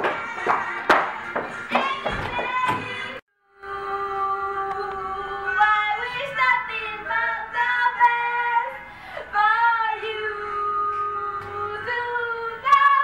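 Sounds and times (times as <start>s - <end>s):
soft backing music: 0.0s - 13.0s
woman singing a slow ballad: 3.5s - 13.0s.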